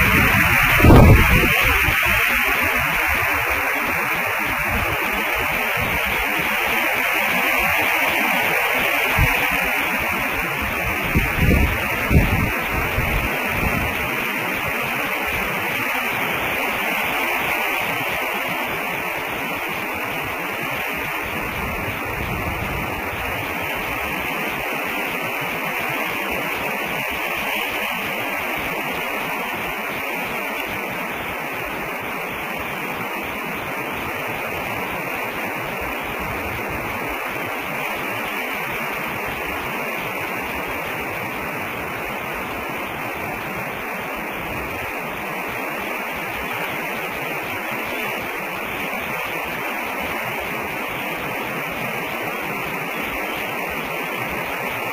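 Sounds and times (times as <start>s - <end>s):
constant high-pitched tone: 0.0s - 54.9s
static hiss: 0.0s - 54.9s.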